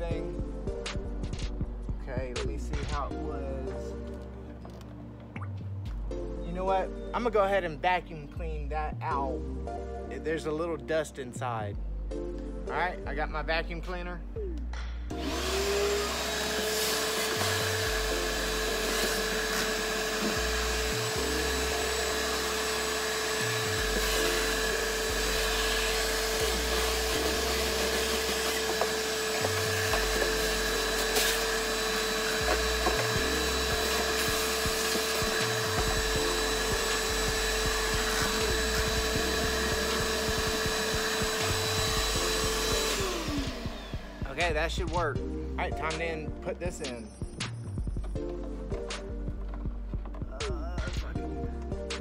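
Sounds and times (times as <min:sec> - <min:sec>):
vacuum cleaner running: 0:15.1 - 0:44.8
nozzle knocking and scraping: 0:47.8 - 0:50.3.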